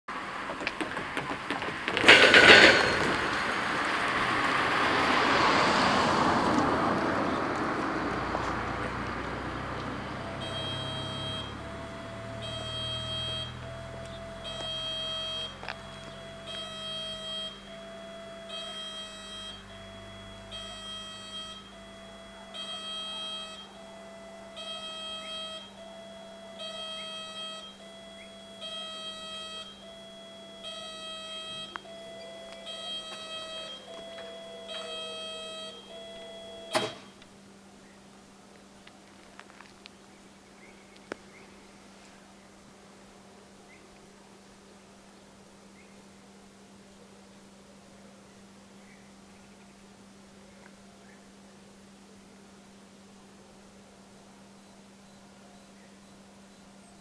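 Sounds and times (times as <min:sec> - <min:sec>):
car driving over level crossing: 0:00.1 - 0:37.4
crossing warning bell ringing: 0:00.6 - 0:06.4, 0:08.0 - 0:37.2.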